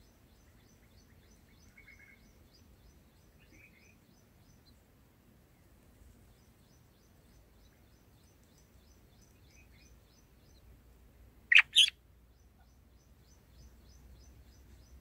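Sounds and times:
high ticking chirps: 11.5s - 11.9s
bird giving sharp calls: 11.5s - 12.0s.

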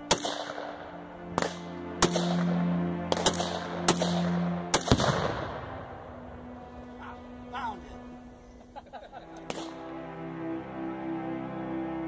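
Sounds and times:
sharp gunshots: 0.0s - 0.8s, 1.4s - 5.9s
background music: 0.0s - 12.0s.

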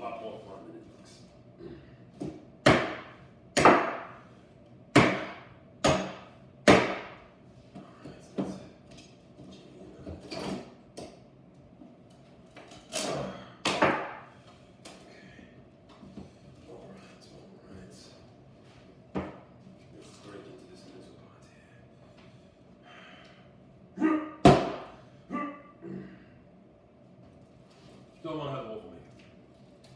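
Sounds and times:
hammer striking wooden crate: 2.6s - 4.1s.

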